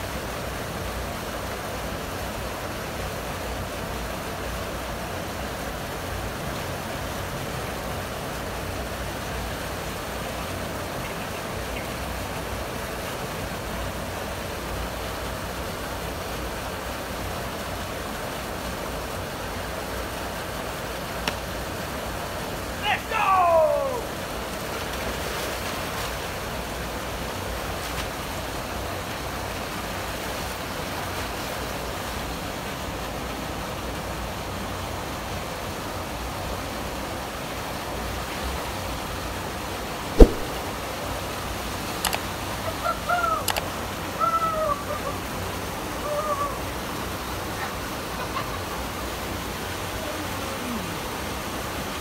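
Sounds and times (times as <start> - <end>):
short rising and falling calls: 22.8 - 24.1, 40.2 - 40.6
sharp knock: 40.2 - 40.6.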